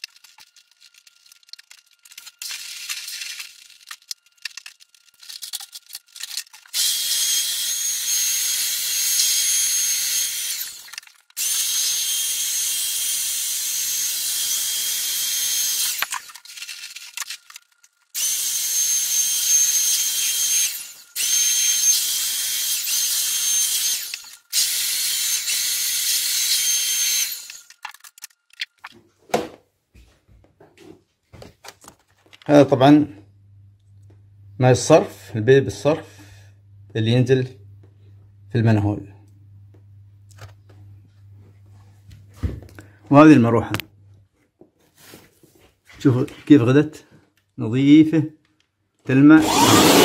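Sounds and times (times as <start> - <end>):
electric air blower running: 49.4 - 50.0.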